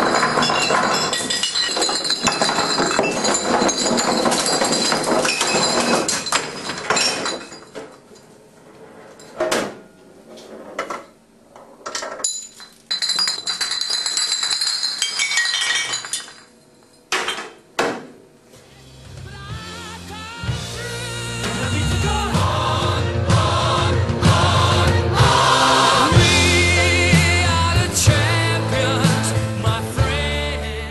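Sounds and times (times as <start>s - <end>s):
glass bottles clinking and knocking: 0.0s - 8.2s, 11.8s - 17.6s
music: 18.5s - 30.9s.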